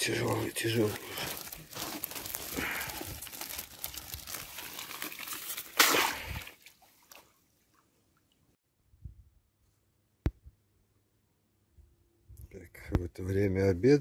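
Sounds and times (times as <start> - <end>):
net brushing through grass: 0.0 - 6.3
loud splash into pond: 5.2 - 7.3.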